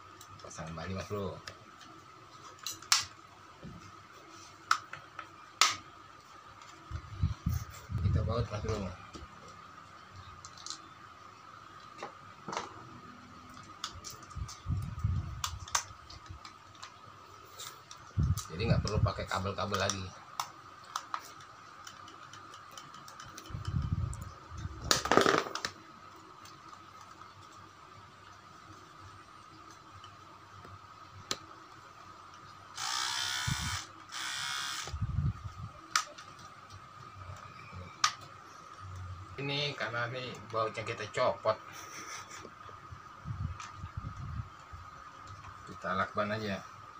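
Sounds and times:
faint steady high hum: 0:00.0 - 0:46.9
small drill motor whirring: 0:32.7 - 0:35.0.

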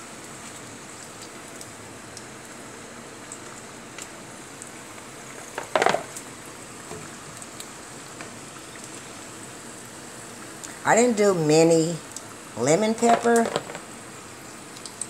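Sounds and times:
deep-frying sizzle and pops: 0:00.0 - 0:10.8, 0:11.7 - 0:15.0
utensil clattering against pan: 0:05.6 - 0:06.1, 0:13.1 - 0:13.8.

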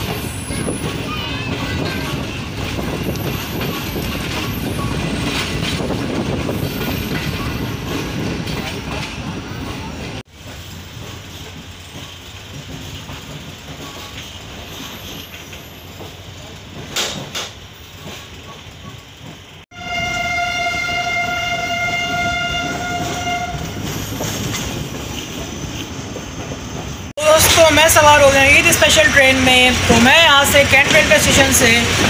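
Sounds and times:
passenger train running: 0:00.0 - 0:32.0
locomotive horn: 0:19.7 - 0:23.8.

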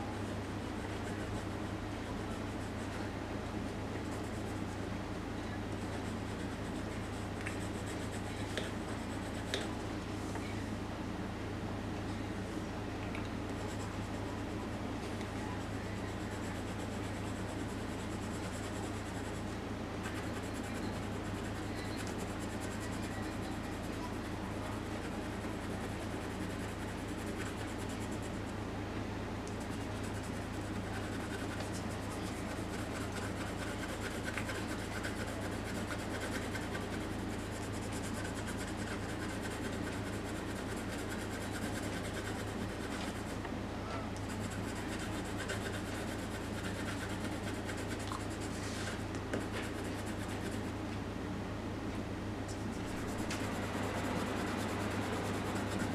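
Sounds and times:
pencil scratching on paper: 0:00.2 - 0:03.0, 0:04.0 - 0:04.8, 0:05.7 - 0:09.7, 0:15.5 - 0:28.5, 0:29.6 - 0:43.4, 0:44.2 - 0:50.7, 0:52.7 - 0:55.9.

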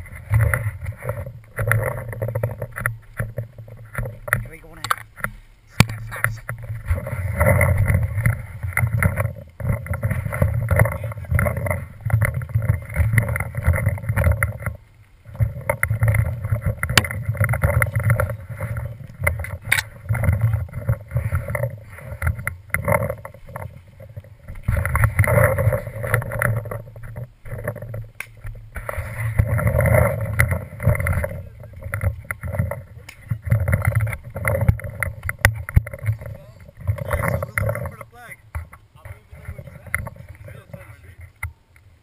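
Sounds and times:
gear jostling: 0:00.0 - 0:41.4.

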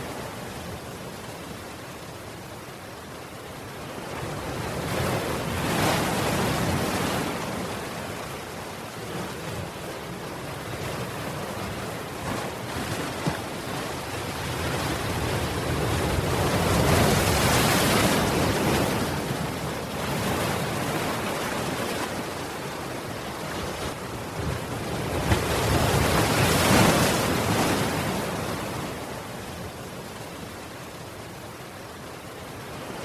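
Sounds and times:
waves breaking: 0:00.0 - 0:33.0.

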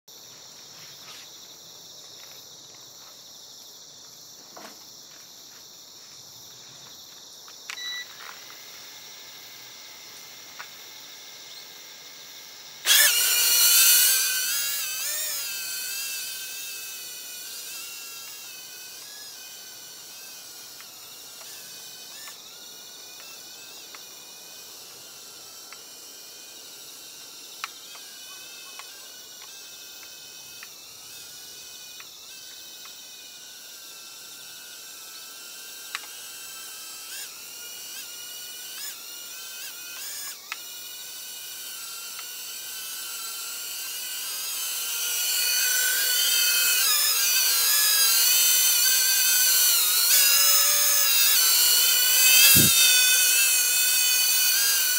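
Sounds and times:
drone propellers whining: 0:07.6 - 0:54.9
sharp ticks: 0:32.8 - 0:33.0, 0:35.9 - 0:36.2.

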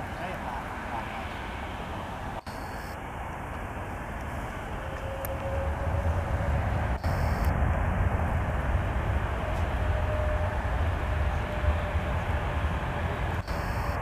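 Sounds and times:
jet engines rumbling: 0:00.0 - 0:14.0
faint thin whine: 0:02.4 - 0:03.0, 0:07.0 - 0:07.6, 0:13.3 - 0:14.0.

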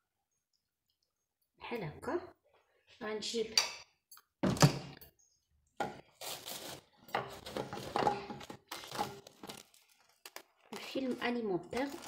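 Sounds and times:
cling film crinkling: 0:08.5 - 0:12.0.

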